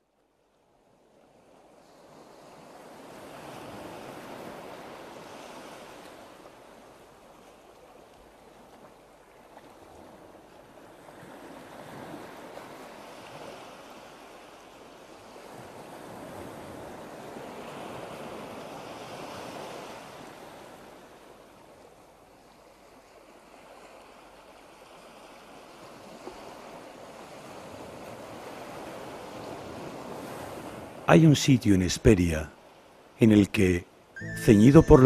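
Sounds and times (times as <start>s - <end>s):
waves washing: 22.4s - 35.0s.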